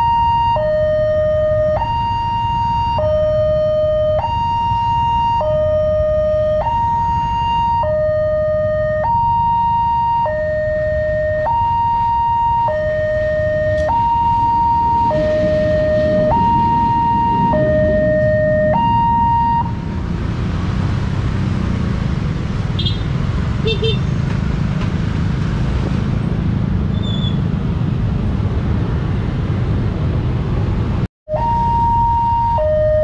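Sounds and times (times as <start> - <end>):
level crossing alarm: 0.0 - 19.8, 31.3 - 33.0
road traffic: 0.0 - 33.0
diesel locomotive rumble: 13.2 - 31.1.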